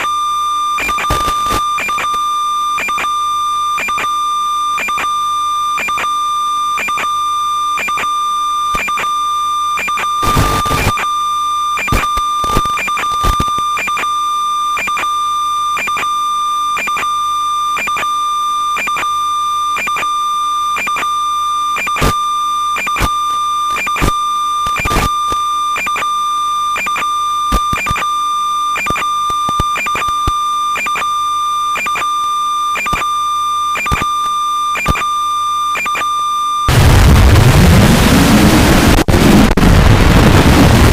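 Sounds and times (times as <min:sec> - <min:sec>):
high electronic whine: 0:00.0 - 0:40.9
crackling clicks: 0:00.8 - 0:03.0, 0:08.7 - 0:09.0, 0:11.8 - 0:14.1, 0:22.8 - 0:26.0, 0:26.8 - 0:28.0, 0:28.8 - 0:31.1, 0:32.8 - 0:33.1, 0:33.8 - 0:35.1.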